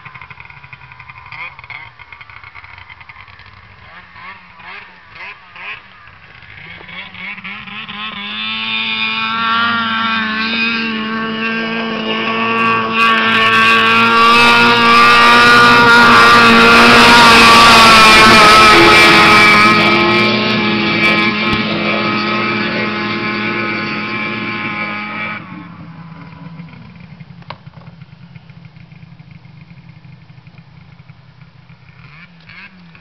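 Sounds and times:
snowmobile engine running hard: 0.0 - 33.0.

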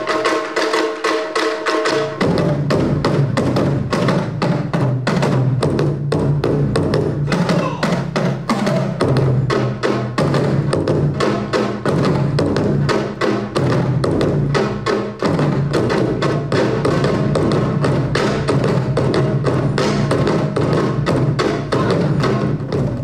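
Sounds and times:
drum ensemble playing fast rhythm: 0.0 - 23.0.

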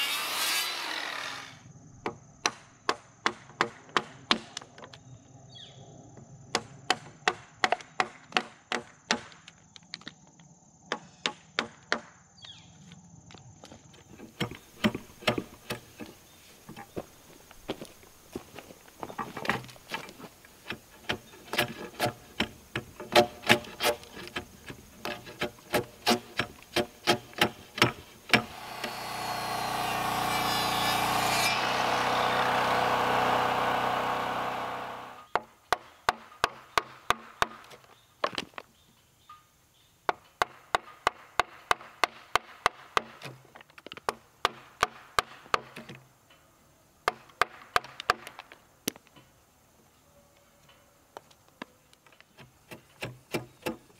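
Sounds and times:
circular saw running: 0.0 - 1.7, 28.4 - 35.3.

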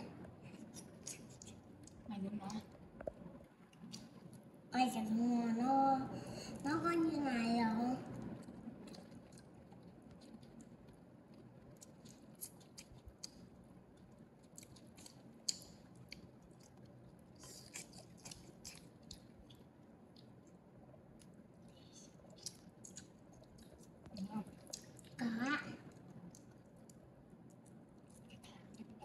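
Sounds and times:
baby monkey chewing and lip-smacking: 0.2 - 2.6, 8.1 - 20.6, 21.2 - 29.0.

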